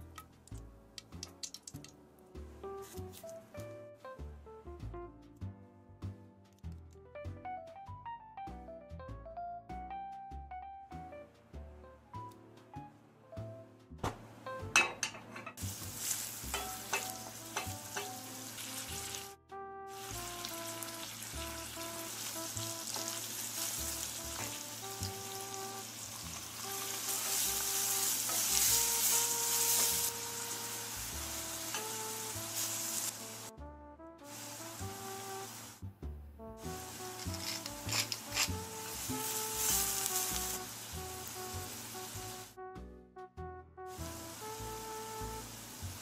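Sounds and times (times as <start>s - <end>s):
soft background music: 0.0s - 46.0s
bacon sizzling in oil: 15.6s - 33.5s, 34.2s - 35.8s, 36.6s - 42.5s, 43.9s - 46.0s
wooden spatula stirring: 36.7s - 40.6s.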